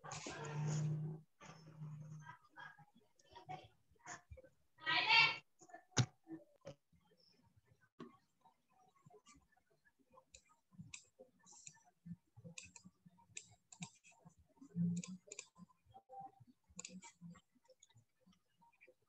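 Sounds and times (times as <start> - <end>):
computer mouse clicks: 12.6 - 14.1, 14.9 - 15.6, 16.8 - 17.2.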